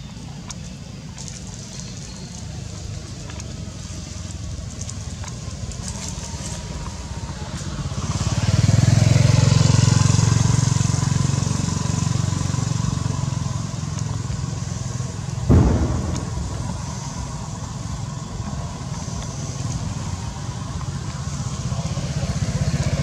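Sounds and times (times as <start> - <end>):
vehicle passing by: 6.2 - 18.2.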